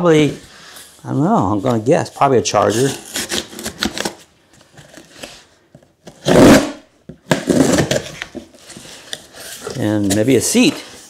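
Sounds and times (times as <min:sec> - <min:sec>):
cardboard tearing scrape: 0:02.5 - 0:04.2, 0:06.1 - 0:10.9.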